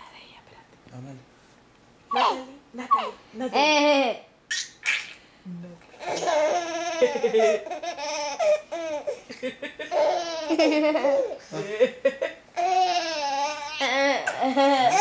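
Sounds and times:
baby laughing and squealing: 4.5s - 5.2s.

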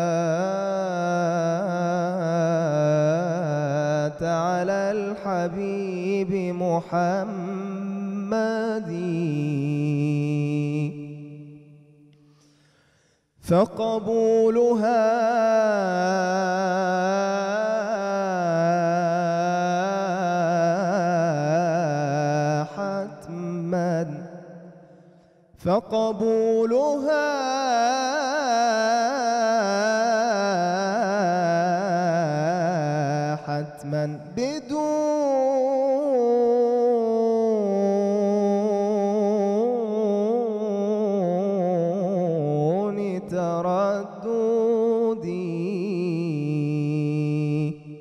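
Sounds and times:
man singing devotional chant: 0.0s - 12.1s, 13.4s - 48.0s
quick breath: 12.2s - 13.4s.

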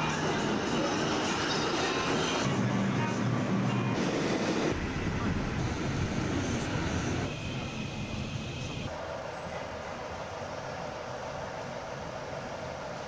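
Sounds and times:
subway train running: 0.0s - 13.0s.

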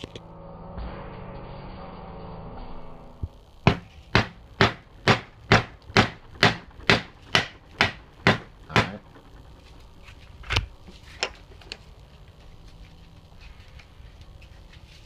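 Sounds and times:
hammer knocking on wooden board: 3.7s - 9.0s.

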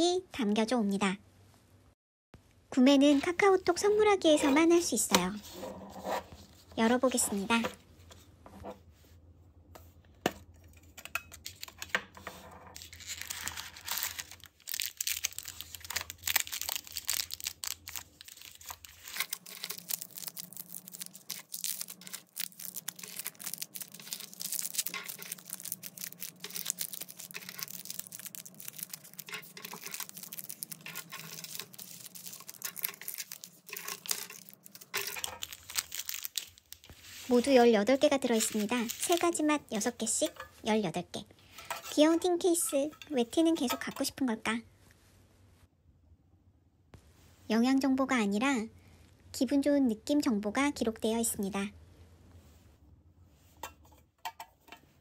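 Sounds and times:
plastic wrappers crinkling: 12.8s - 40.4s.

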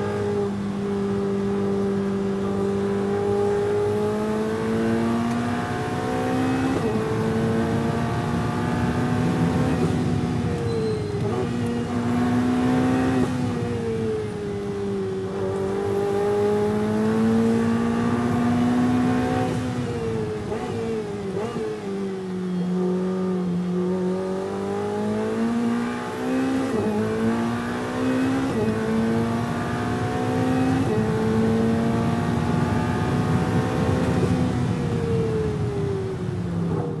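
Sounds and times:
racing car engine revving: 15.3s - 21.8s, 22.8s - 34.4s.

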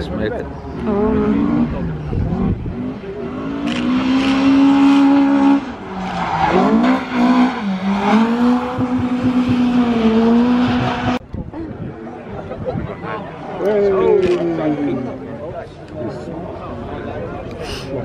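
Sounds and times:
van engine at high revs: 0.9s - 5.7s.

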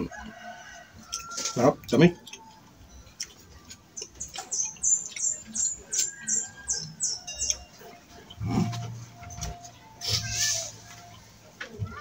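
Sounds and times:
bird calling high notes: 9.7s - 12.0s.

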